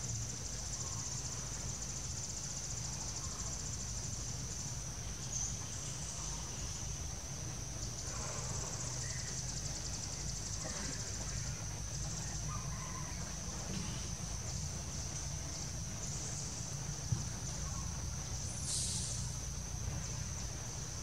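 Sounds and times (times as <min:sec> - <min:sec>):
fast pulsing insect chorus: 0:00.0 - 0:21.0
insects droning high: 0:00.0 - 0:21.0
low steady rumble: 0:00.0 - 0:21.0.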